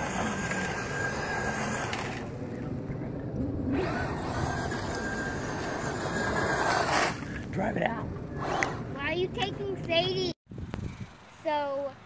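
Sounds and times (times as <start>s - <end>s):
high motor whine: 0.0s - 9.0s.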